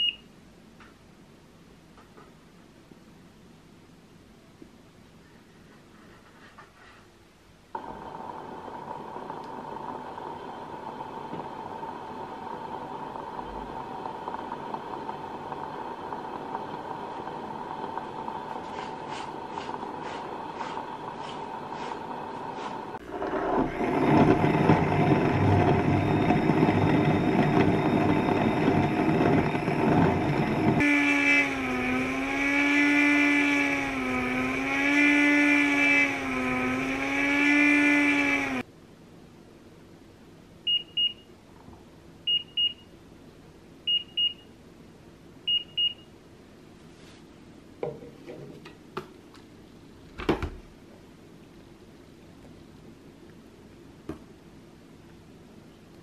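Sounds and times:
soy milk maker grinding: 7.8 - 38.6
machine motor whine: 21.6 - 38.6.

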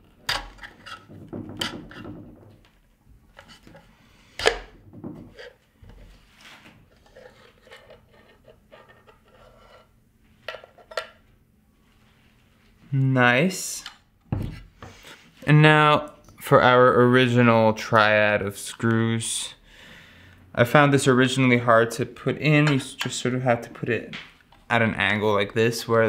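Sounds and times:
rubbing and scraping on metal: 0.0 - 2.2, 5.3 - 9.9.

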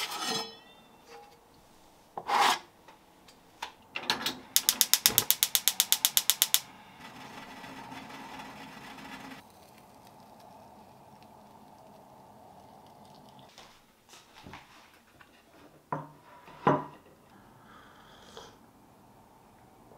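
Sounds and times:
stove igniter clicking: 4.6 - 6.6
gas flame hissing: 4.6 - 6.7.

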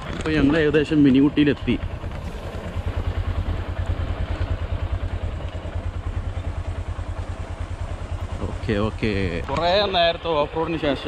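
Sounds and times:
rattling over gravel: 0.0 - 2.9
motorcycle engine running: 0.0 - 11.0.

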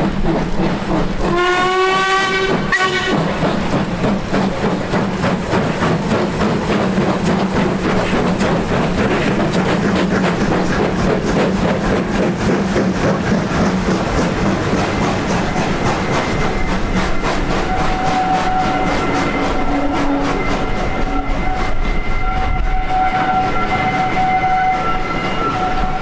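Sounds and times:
rattle of train wheels: 0.0 - 26.0
steam locomotive exhaust beats: 0.0 - 26.0
steam whistle: 1.3 - 3.3, 16.3 - 26.0.

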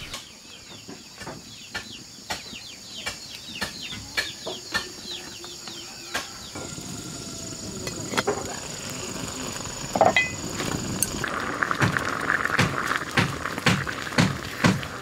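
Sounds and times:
chickens cheeping: 1.9 - 11.2.

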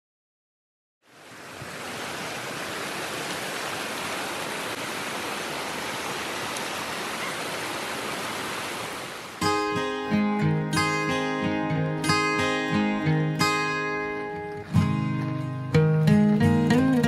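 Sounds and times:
stream rushing over rocks: 1.0 - 10.1
acoustic guitar music: 9.4 - 17.0.

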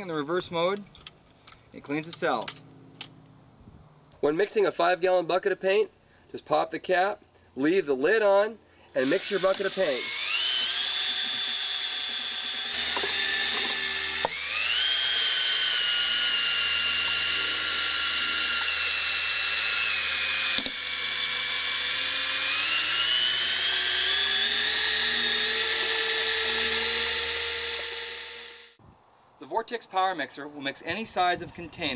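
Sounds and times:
cordless drill motor whining: 8.9 - 28.8.

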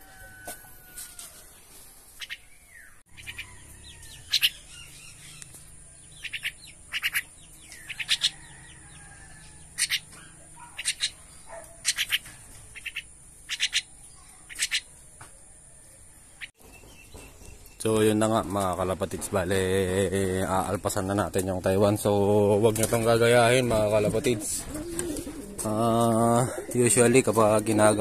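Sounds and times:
mynas calling: 2.2 - 15.0.

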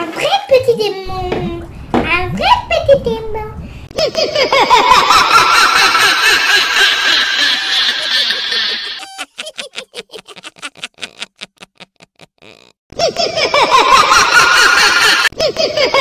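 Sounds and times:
girl cackling: 4.0 - 10.9.

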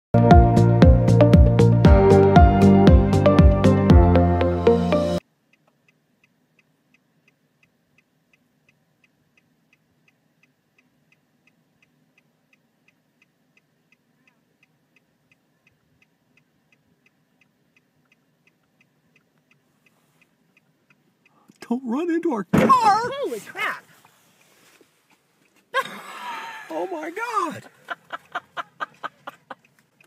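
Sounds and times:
faint regular ticking: 5.4 - 22.5, 23.9 - 25.7, 27.4 - 30.0.

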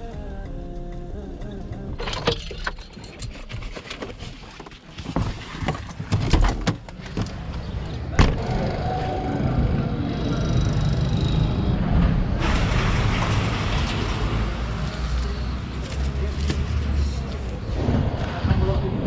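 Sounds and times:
van door opening: 5.2 - 7.6
street traffic: 5.6 - 19.0.

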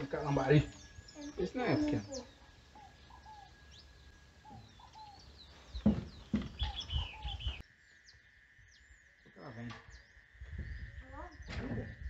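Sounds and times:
birds falling whistles: 0.0 - 7.6
thin high bird chirps: 0.0 - 8.9
handling knocks and rustles: 5.7 - 6.8.

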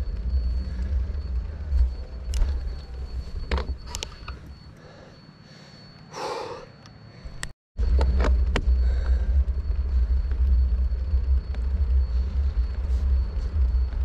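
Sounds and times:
person exhaling: 4.8 - 7.4
wind rumble on microphone: 7.8 - 14.0.

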